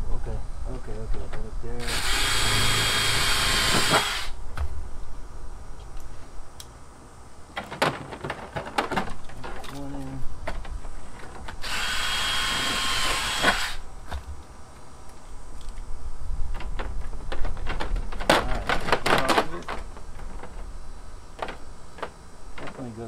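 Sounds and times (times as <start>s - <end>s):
power drill running: 1.8s - 4.4s, 11.6s - 13.8s.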